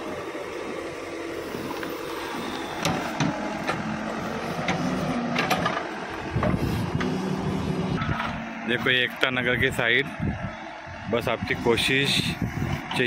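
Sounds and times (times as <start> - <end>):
diesel engine running: 0.0 - 13.0
sharp knocks and clanks: 2.8 - 3.8, 4.6 - 7.1.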